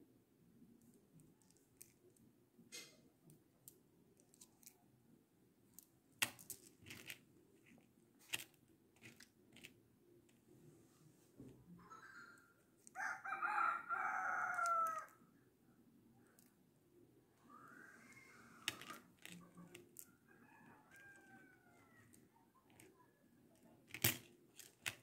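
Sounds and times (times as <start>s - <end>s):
beads clicking: 5.7s - 9.7s, 18.6s - 20.1s, 23.5s - 25.0s.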